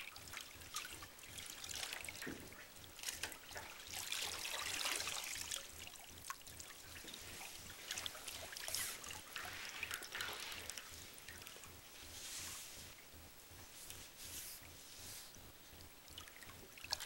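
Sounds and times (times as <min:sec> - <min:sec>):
water splashing in a metal tub: 0:00.0 - 0:11.8, 0:16.1 - 0:17.0
water dripping: 0:00.0 - 0:12.0, 0:15.7 - 0:17.0.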